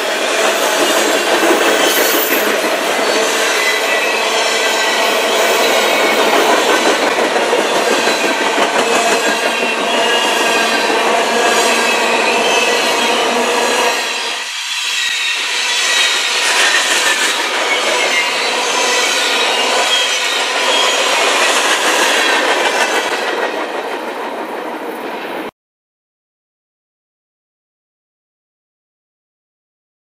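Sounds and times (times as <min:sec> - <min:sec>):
wheels squealing: 0:00.0 - 0:23.1
train wheels rumbling on rails: 0:00.0 - 0:25.5.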